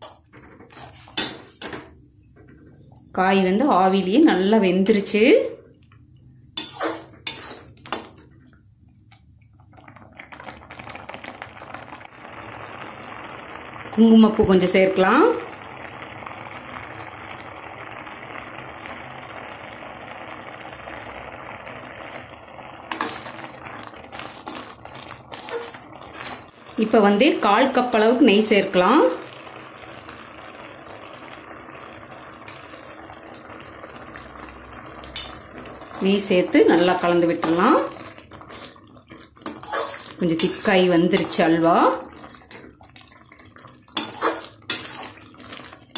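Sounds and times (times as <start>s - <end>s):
spoon scraping a metal pan: 0.0s - 1.8s, 6.6s - 8.1s, 22.9s - 23.3s, 25.4s - 26.5s, 35.2s - 38.8s, 39.4s - 42.6s, 44.0s - 45.3s
food bubbling and crackling in pan: 0.0s - 45.9s.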